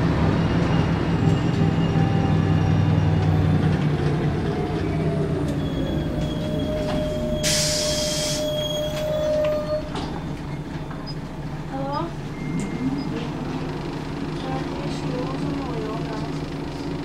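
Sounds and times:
bus diesel engine humming: 0.0 - 17.0
air brake hiss: 7.4 - 8.6.

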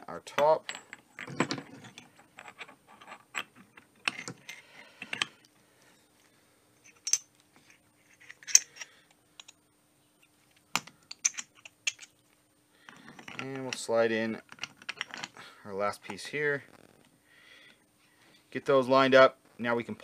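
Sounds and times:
metal parts clicking and clinking: 0.4 - 5.4, 6.8 - 7.3, 8.1 - 9.6, 10.7 - 12.2, 12.9 - 13.9, 14.5 - 15.4.

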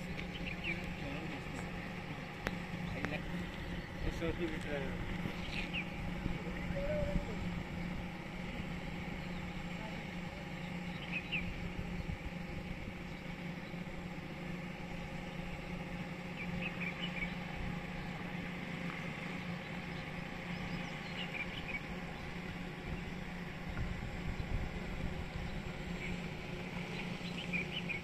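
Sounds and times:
low machinery hum: 0.0 - 28.0
bird chirps: 5.3 - 6.0, 10.6 - 13.8, 16.3 - 18.2, 19.1 - 22.4, 26.9 - 28.0.

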